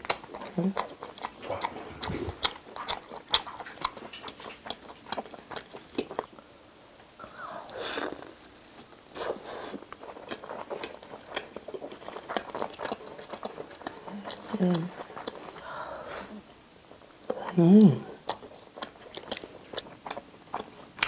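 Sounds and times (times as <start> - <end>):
wet mouth clicks: 0.8 - 5.7.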